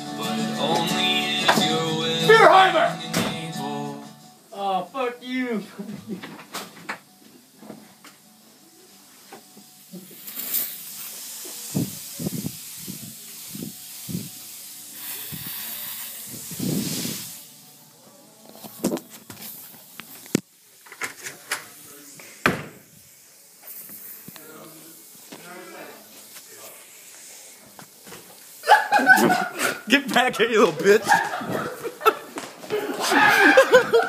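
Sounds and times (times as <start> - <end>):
aerosol can spraying: 9.9 - 17.6, 23.0 - 29.2.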